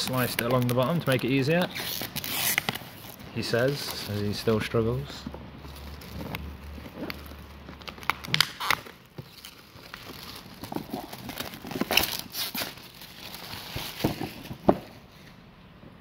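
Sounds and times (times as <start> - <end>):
shrink wrap crinkling: 0.0 - 15.2.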